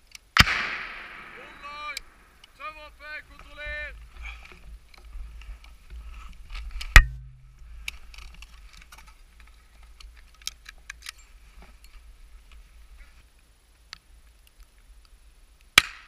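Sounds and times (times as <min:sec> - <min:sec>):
rifle shot: 0:00.4 - 0:02.4, 0:15.8 - 0:16.0.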